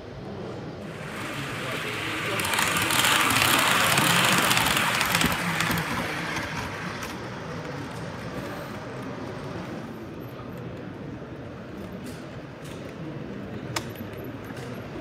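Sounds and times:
model train running noise: 0.7 - 12.0
model train rattling past: 0.8 - 10.0.

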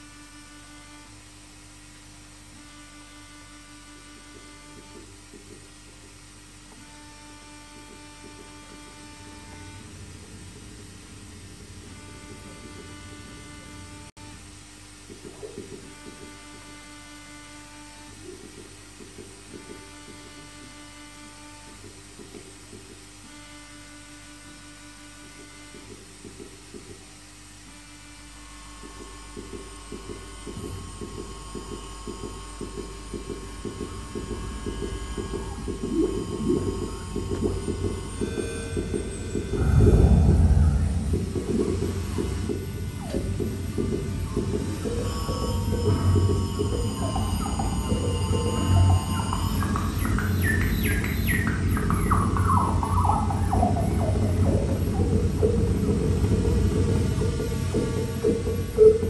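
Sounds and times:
low hum: 6.8 - 14.5, 30.3 - 59.0
thin steady high tones: 28.4 - 59.0
swooping electronic chirps: 30.2 - 59.0
stuttering low pulses: 33.4 - 59.0.

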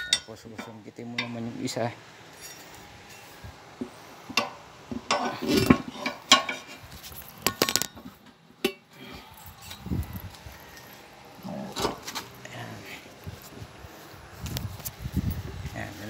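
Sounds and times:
tire iron clinking on wheel rim: 0.0 - 1.5, 2.3 - 3.3.

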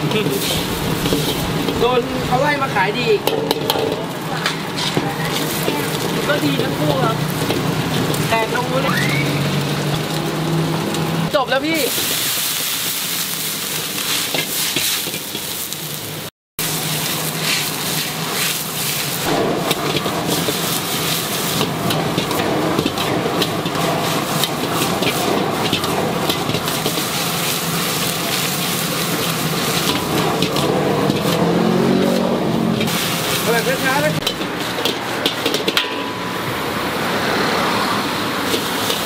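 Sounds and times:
metal spatula scraping a pan: 0.0 - 2.1, 3.2 - 8.7, 17.3 - 36.5
noodles sizzling in a wok: 0.0 - 39.0.

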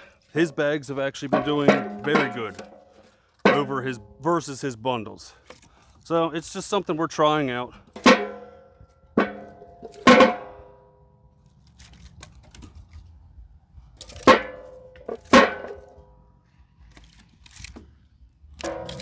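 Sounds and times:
firewood dropped into metal barrel: 1.2 - 3.8, 7.9 - 10.6, 14.0 - 16.1, 18.6 - 19.0.

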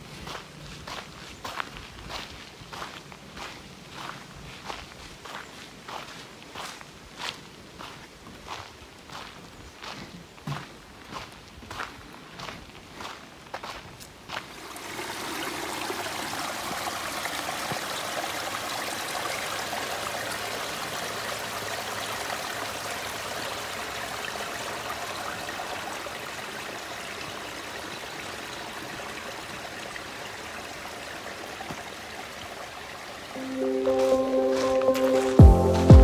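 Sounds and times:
creek water trickling: 12.4 - 35.9.

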